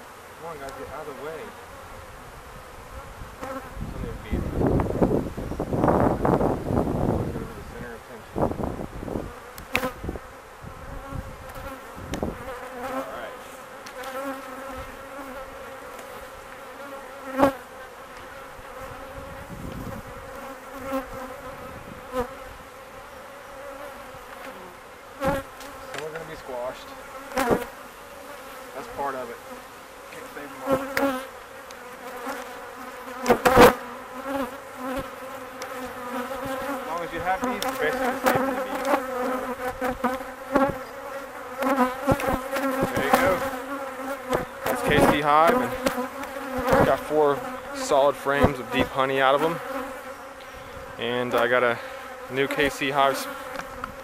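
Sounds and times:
honey bees humming: 0.0 - 54.0
wooden knocks of hive boxes: 30.7 - 32.5, 34.9 - 40.8, 41.6 - 43.6, 44.2 - 47.1, 53.5 - 54.0.

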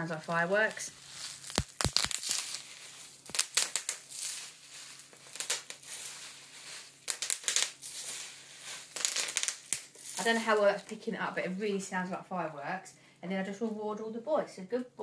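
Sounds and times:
bubble wrap popping: 0.0 - 11.8
plastic crinkling: 0.0 - 11.8.

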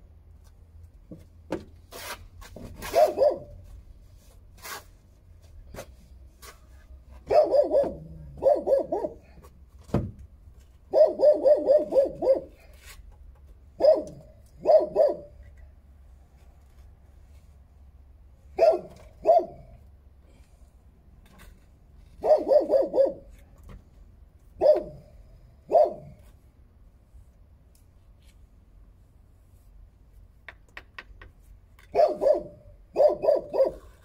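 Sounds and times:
dog barking: 2.9 - 3.6, 7.3 - 9.3, 10.9 - 12.6, 13.8 - 15.3, 18.6 - 19.8, 22.2 - 23.3, 24.6 - 25.1, 25.7 - 26.2, 31.9 - 33.9.

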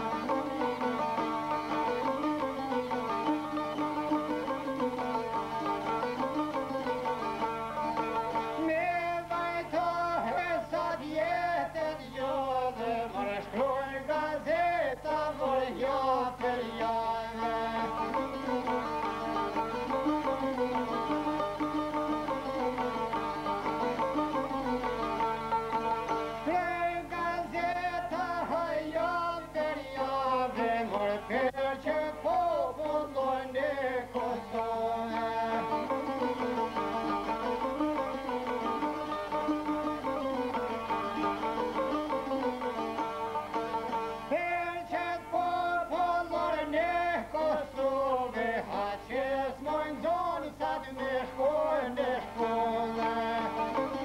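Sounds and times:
plucked lutes playing folk tune: 0.0 - 14.6, 15.3 - 49.0, 49.9 - 54.0
man singing: 8.6 - 18.6, 26.4 - 36.2, 44.3 - 54.0.

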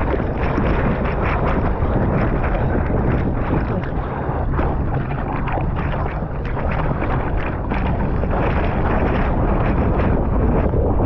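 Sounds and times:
arms splashing through water: 0.0 - 11.0
water rushing: 0.0 - 11.0
wind on microphone: 0.0 - 11.0.

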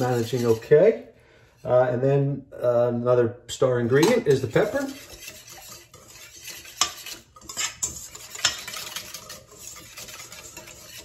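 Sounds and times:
whisk clinking bowl: 0.0 - 0.7, 3.9 - 11.0
whisk scraping metal bowl: 0.0 - 1.9, 3.8 - 11.0.

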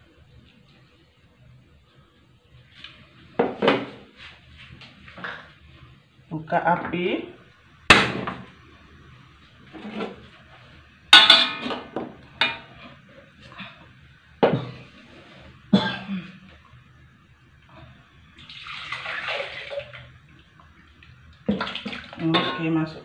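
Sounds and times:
metal spatula clanking on wok: 11.2 - 11.7.

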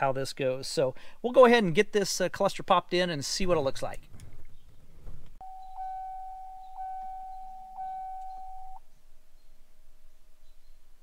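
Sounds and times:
car warning chime: 5.4 - 8.8.

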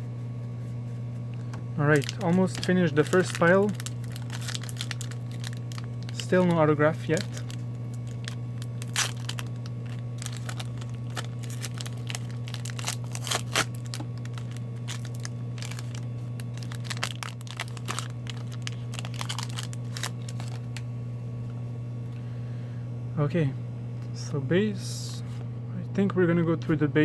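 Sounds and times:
low steady hum: 0.0 - 27.0
foil wrapper crinkling and tearing: 1.8 - 20.7.

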